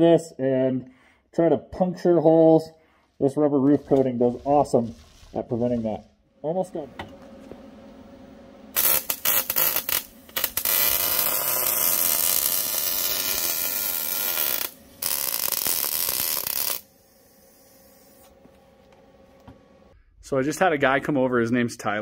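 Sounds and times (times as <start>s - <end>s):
faint hum: 2.8s - 21.7s
welder arc crackling: 7.1s - 19.0s.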